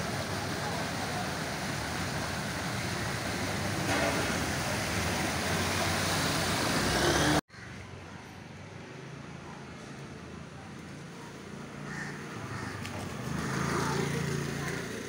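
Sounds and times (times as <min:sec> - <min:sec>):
vehicles splashing through water: 0:00.0 - 0:07.4, 0:11.1 - 0:15.0
outdoor background noise: 0:00.0 - 0:15.0
motorcycle ploughing through water: 0:13.0 - 0:15.0.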